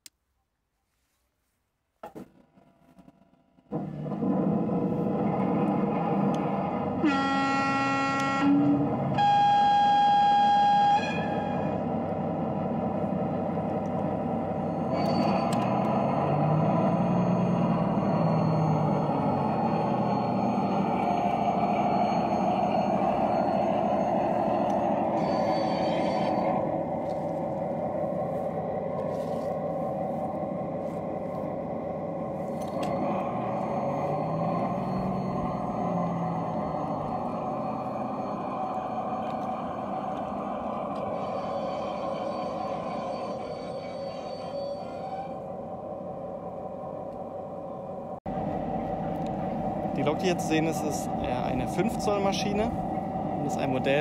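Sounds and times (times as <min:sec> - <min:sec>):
click: 0:00.0 - 0:00.2, 0:15.0 - 0:16.0
diesel engine idling: 0:03.7 - 0:44.3, 0:45.4 - 0:54.0
locomotive horn blasts: 0:06.9 - 0:11.8
wheels rolling on rails: 0:11.2 - 0:47.3.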